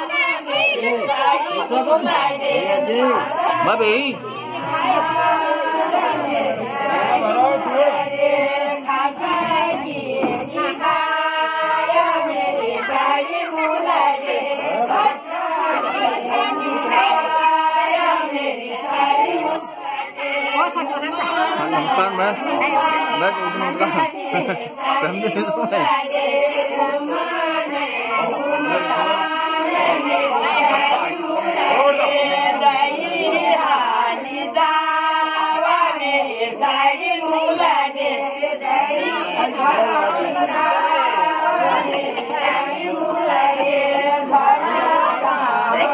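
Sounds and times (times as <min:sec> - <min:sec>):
women and girls singing folk song: 0:00.0 - 0:45.9.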